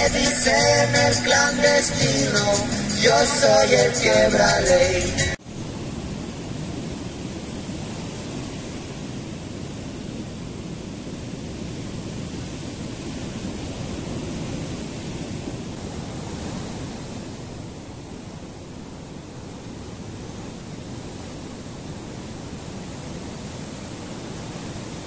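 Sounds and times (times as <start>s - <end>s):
ocean surf breaking on sand: 0.0s - 25.0s.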